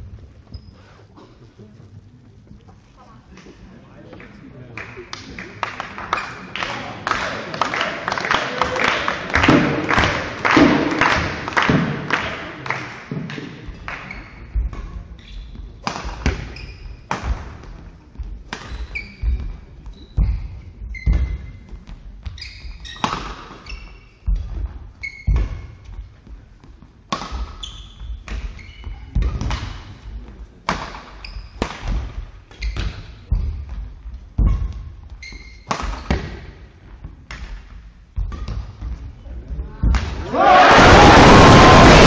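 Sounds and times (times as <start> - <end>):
shoes squeaking on court floor: 0.0 - 1.6, 13.6 - 17.2, 17.8 - 30.4, 31.0 - 36.5
racket striking shuttlecock: 15.8 - 17.6, 27.1 - 28.6, 29.2 - 30.0, 30.6 - 33.6, 34.4 - 36.5.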